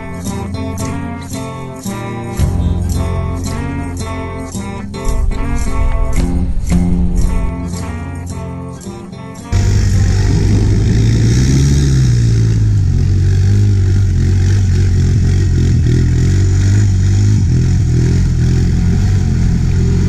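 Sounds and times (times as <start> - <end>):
atv engine revving: 9.5 - 20.0
water splashing from wheels: 9.6 - 20.0.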